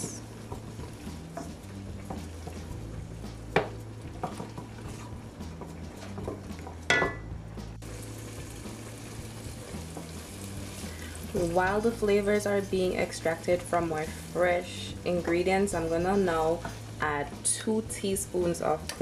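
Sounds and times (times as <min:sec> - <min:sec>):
vegetables sizzling in butter: 0:00.0 - 0:07.0, 0:07.7 - 0:19.0
spoon clinking against pot: 0:06.9 - 0:07.2.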